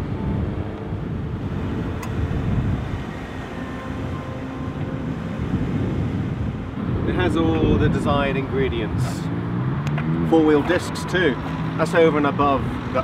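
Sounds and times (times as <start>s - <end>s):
car engine low hum: 0.0s - 13.0s.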